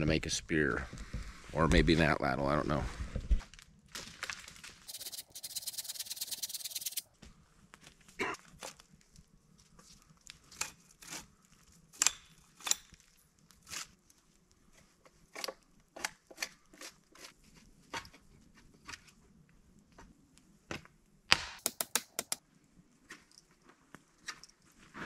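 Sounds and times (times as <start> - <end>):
knife scraping wood: 4.9 - 7.0, 16.3 - 17.4.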